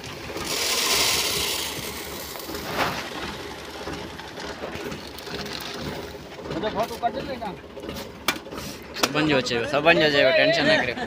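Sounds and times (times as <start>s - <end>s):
seed pouring into plastic box: 0.4s - 3.2s.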